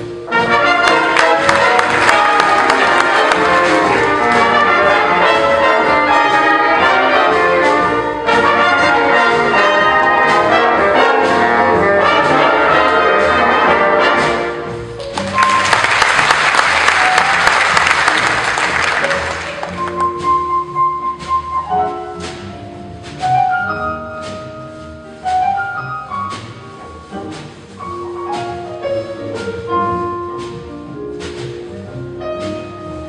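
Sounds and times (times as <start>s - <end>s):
big band playing: 0.0s - 33.0s
audience applause: 0.7s - 4.7s, 15.0s - 20.1s.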